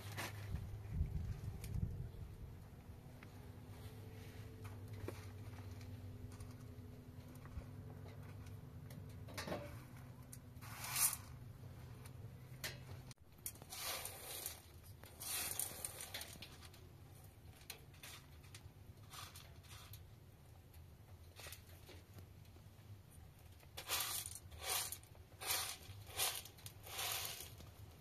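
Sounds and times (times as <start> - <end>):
dried beans rattling in a pan: 9.0 - 11.5, 12.6 - 22.2, 23.2 - 28.0.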